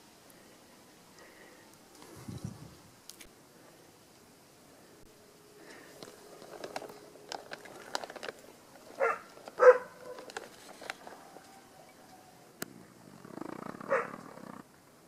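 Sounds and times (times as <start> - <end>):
light rustling: 5.6 - 12.2.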